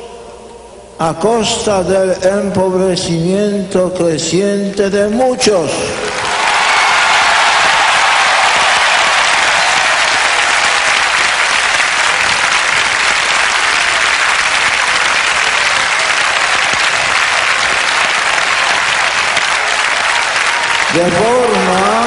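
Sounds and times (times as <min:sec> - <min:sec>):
large crowd applauding: 0:05.7 - 0:22.0.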